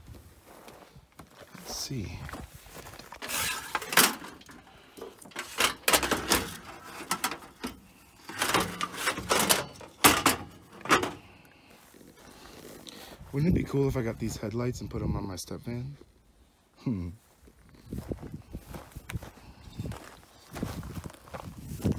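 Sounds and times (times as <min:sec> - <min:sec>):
metal scraping: 0:03.1 - 0:11.3
sheet metal knocks and clanks: 0:08.3 - 0:11.2.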